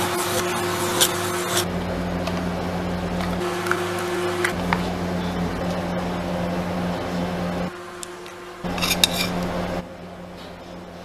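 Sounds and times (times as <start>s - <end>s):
ice cream machine humming: 0.0s - 11.0s
metal spatula clicks and scrapes: 8.8s - 9.4s.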